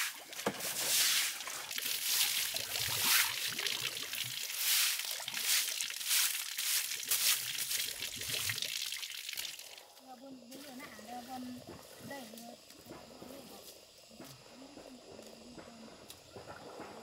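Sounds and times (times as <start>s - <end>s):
water sloshing on concrete: 0.0s - 9.5s
broom swishing strokes: 0.7s - 1.4s, 4.5s - 7.4s.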